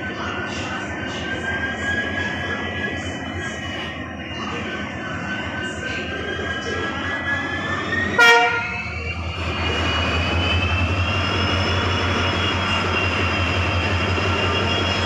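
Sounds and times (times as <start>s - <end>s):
diesel locomotive engine running: 0.0s - 15.0s
rising engine whine: 0.0s - 15.0s
locomotive horn toot: 8.2s - 9.0s.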